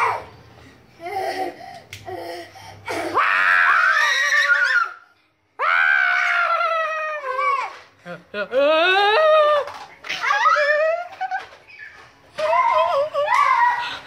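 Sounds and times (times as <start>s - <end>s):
young children laughing: 8.0s - 14.0s.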